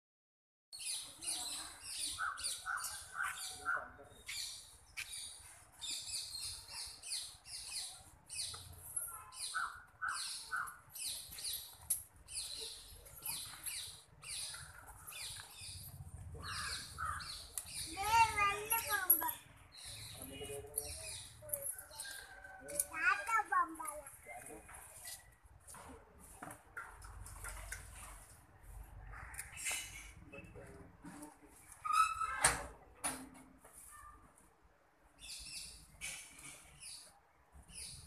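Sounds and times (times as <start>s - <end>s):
birds scratchy high calls: 12.3s - 20.1s.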